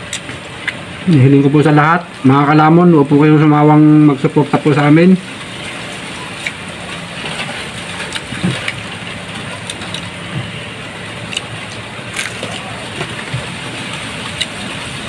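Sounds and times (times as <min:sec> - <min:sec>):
crunchy food being chewed: 0:11.2 - 0:14.6.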